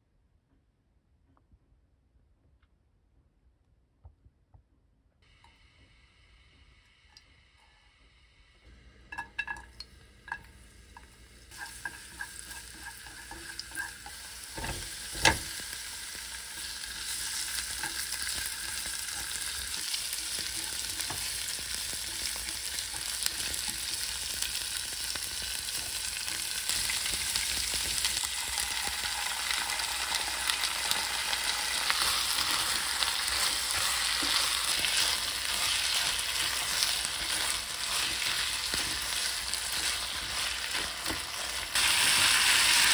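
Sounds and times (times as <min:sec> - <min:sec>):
food sizzling in oil: 0:09.1 - 0:42.9.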